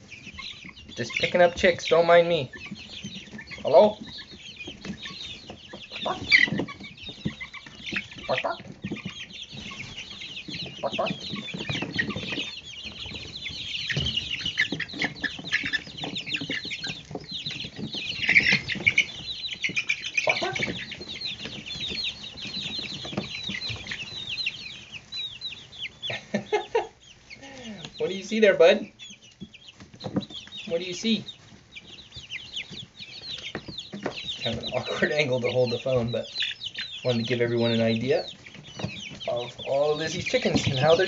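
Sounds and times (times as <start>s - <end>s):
chicks peeping: 0.0s - 41.0s
thumps and rustles of movement: 2.6s - 24.9s, 29.3s - 30.7s, 38.2s - 41.0s.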